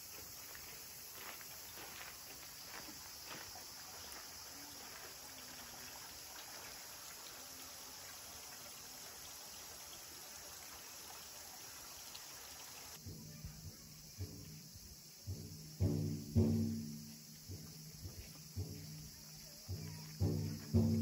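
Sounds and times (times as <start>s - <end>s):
water trickling into stone basin: 1.4s - 13.6s.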